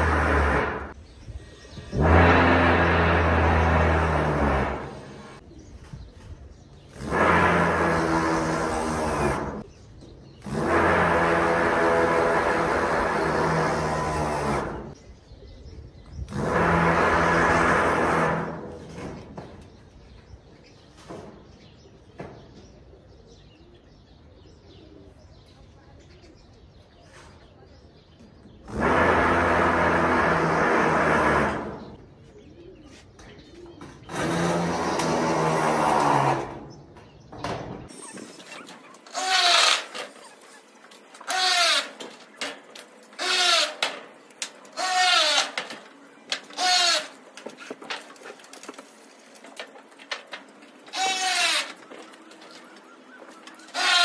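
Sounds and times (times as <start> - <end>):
faint birds chirping: 14.6 - 16.5, 18.8 - 28.9, 31.6 - 34.4, 36.5 - 54.0
power drill bursts: 28.7 - 31.8, 34.1 - 36.4, 37.9 - 40.4, 41.2 - 42.2, 43.2 - 44.0, 44.7 - 45.8
dry palm fronds rustling: 38.4 - 54.0.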